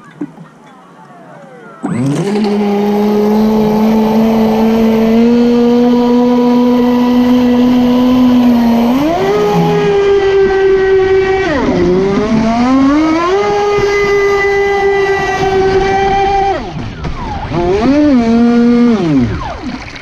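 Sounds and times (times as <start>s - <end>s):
electric boat motor whining: 1.1s - 16.8s, 17.4s - 20.0s
water rushing off hull: 14.6s - 20.0s.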